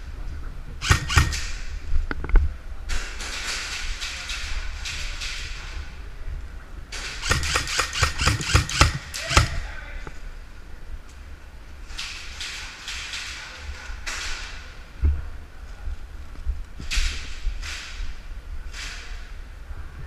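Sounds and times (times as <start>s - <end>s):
airsoft rifle firing rapidly: 0.8s - 1.8s, 7.0s - 9.7s.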